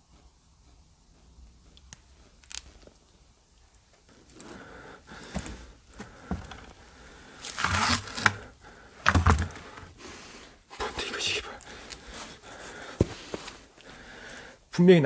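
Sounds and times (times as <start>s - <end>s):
picture frame scraping on floor: 7.4s - 8.4s.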